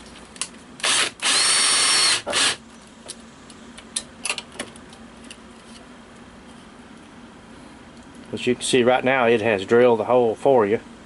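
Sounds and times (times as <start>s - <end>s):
power drill driving screw: 0.8s - 2.6s.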